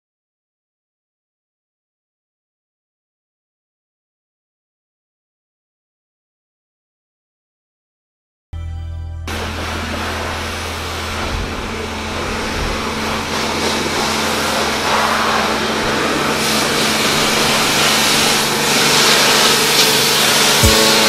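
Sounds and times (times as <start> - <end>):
hissing water spray: 9.3 - 21.0
pressure washer motor hum: 9.3 - 21.0.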